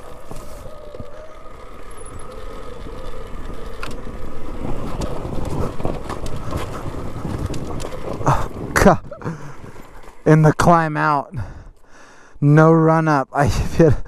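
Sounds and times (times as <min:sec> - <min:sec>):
electric motor whine: 0:00.0 - 0:07.1
bike knocking and rattling: 0:00.0 - 0:10.9
tyres rumbling on loose ground: 0:00.0 - 0:11.5.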